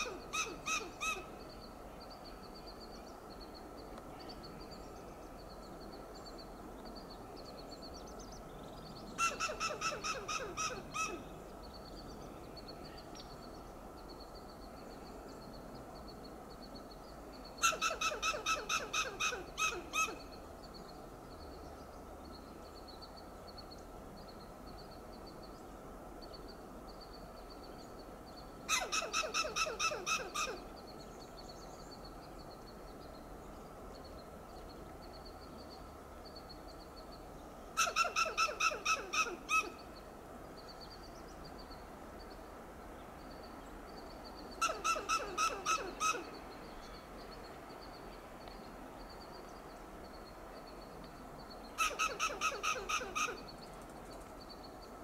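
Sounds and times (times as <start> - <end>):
squirrel alarm calls: 0.0 - 1.4, 9.2 - 11.4, 17.6 - 20.3, 28.7 - 30.7, 37.8 - 40.0, 44.4 - 47.0, 51.7 - 53.6.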